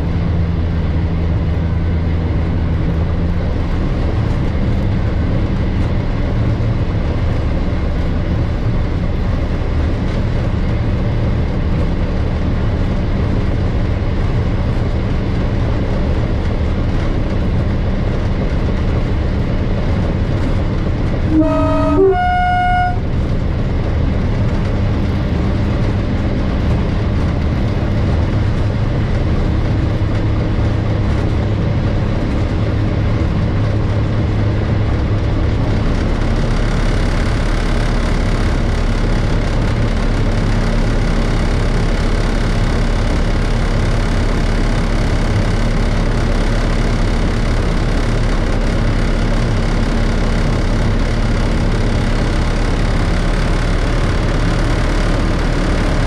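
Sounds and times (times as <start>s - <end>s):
diesel locomotive engine running: 0.0s - 56.0s.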